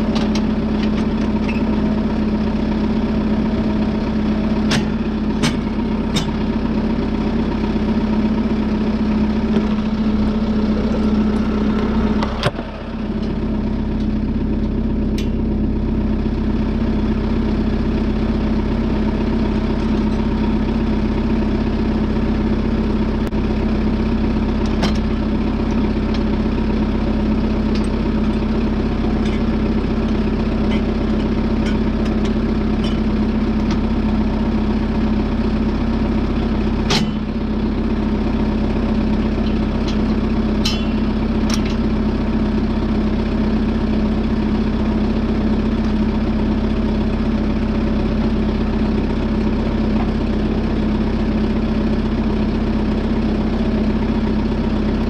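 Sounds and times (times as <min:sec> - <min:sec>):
tractor diesel engine idling: 0:00.0 - 0:55.0
sharp clicks and knocks: 0:04.7 - 0:06.5, 0:39.4 - 0:41.9.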